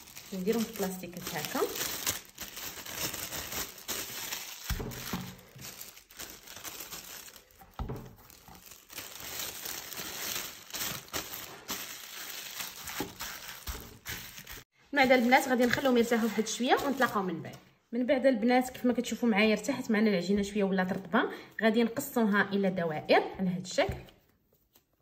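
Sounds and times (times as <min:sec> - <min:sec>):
plastic bag crinkling: 0:00.0 - 0:17.5.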